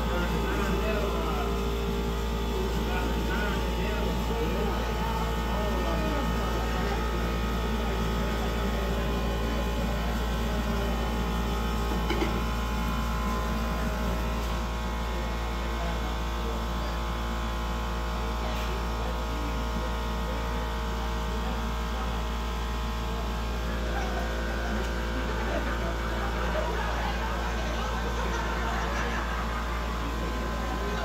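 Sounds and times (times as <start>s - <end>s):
furnaces roaring: 0.0s - 15.9s, 23.2s - 31.0s
faint background voices: 0.0s - 31.0s.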